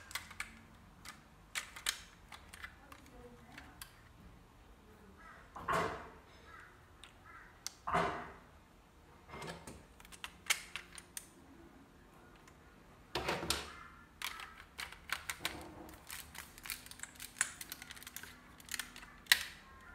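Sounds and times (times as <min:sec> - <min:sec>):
plastic bricks clicking and clattering: 0:00.0 - 0:04.1, 0:09.7 - 0:11.4, 0:13.5 - 0:19.9.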